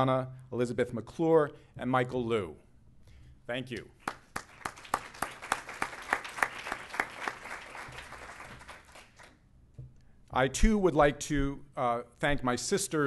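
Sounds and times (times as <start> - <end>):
audience applauding: 4.0 - 9.4.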